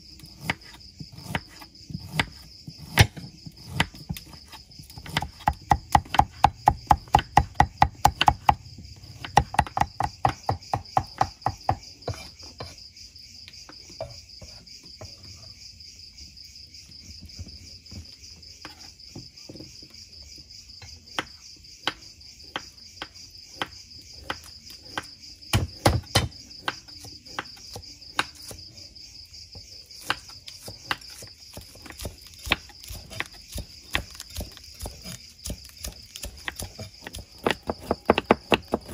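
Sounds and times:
crickets chirring: 0.0 - 38.9
cleaver chopping on wooden block: 0.3 - 12.8, 20.8 - 28.7, 29.5 - 38.9.

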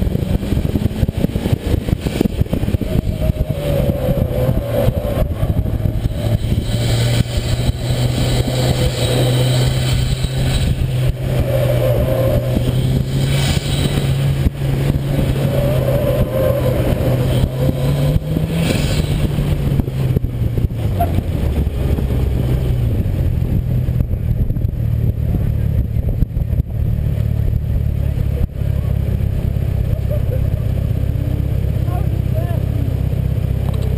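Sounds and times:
car engine from inside cabin: 0.0 - 33.9.

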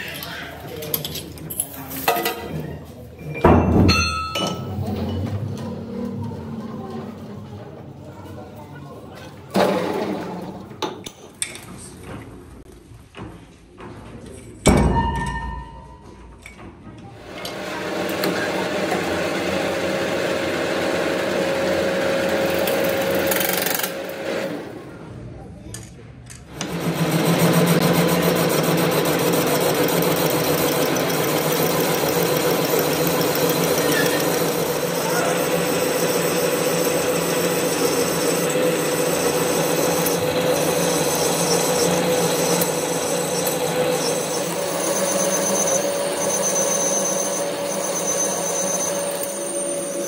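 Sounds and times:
workshop machinery humming: 16.1 - 25.2, 26.4 - 50.0
ringing tone: 44.0 - 50.0.

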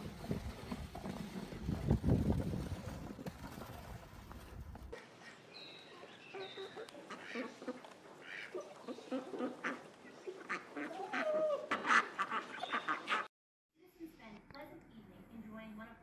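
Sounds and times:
chickens clucking: 6.0 - 13.3
ducks quacking: 6.3 - 13.3.

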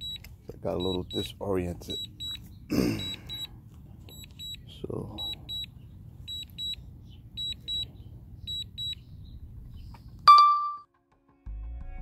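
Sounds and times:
remote controller beeping: 0.0 - 1.3, 1.9 - 3.5, 4.1 - 4.6, 5.2 - 5.7, 6.3 - 6.8, 7.4 - 7.9, 8.5 - 9.0.

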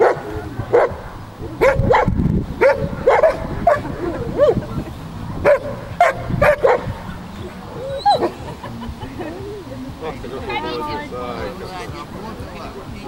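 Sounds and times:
dog barking: 0.0 - 1.0, 1.6 - 4.6, 5.3 - 7.0.

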